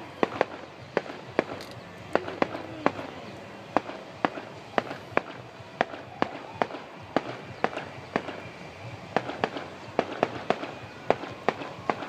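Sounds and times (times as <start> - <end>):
fireworks bangs: 0.0 - 12.0.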